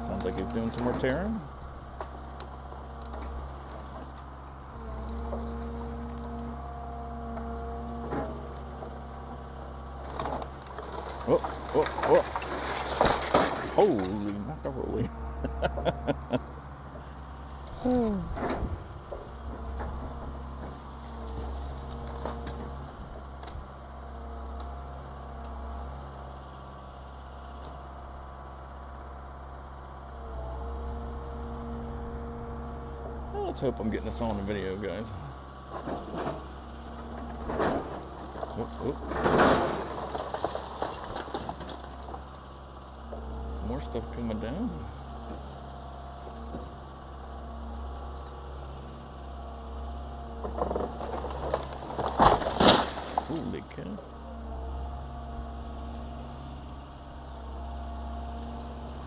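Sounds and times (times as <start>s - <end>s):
building material cracking: 0.0s - 6.2s, 10.0s - 16.4s, 37.1s - 42.6s, 50.4s - 54.0s
building cracking and crunching: 0.0s - 26.8s, 33.2s - 55.1s
excavator diesel engine droning: 0.0s - 59.0s.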